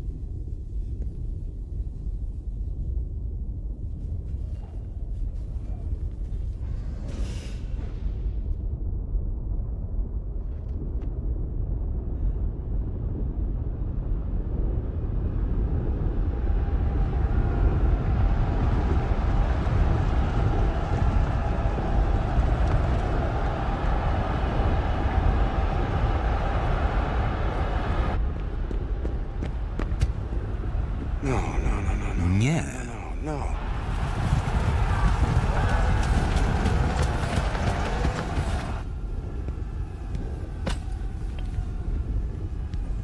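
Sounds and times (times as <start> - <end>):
battle soundtrack rumble: 30.2 - 43.0.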